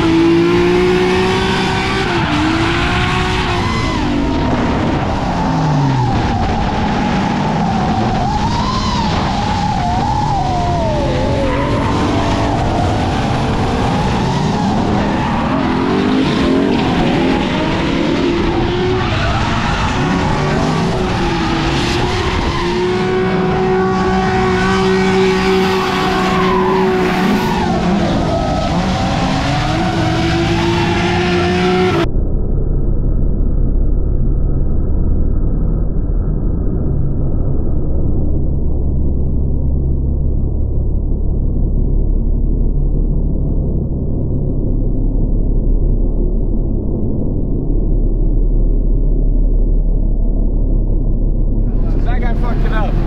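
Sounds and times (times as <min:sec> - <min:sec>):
tires squealing: 0:00.0 - 0:32.0
car engines revving: 0:00.0 - 0:32.1, 0:51.6 - 0:53.0.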